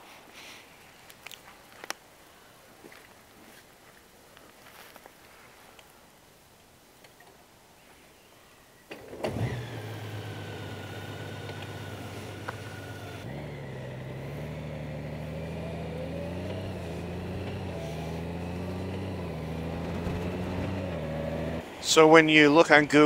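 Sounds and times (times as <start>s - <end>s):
motorcycle engine: 9.0s - 21.7s.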